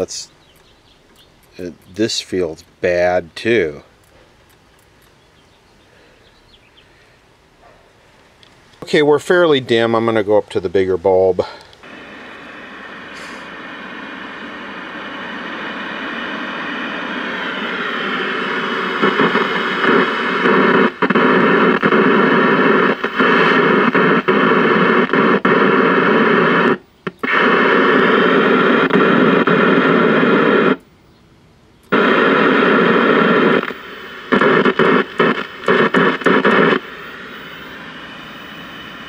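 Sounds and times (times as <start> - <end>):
speaker crackling: 0.0 - 7.0, 8.2 - 30.9, 31.8 - 39.0
television static hiss: 0.0 - 39.0.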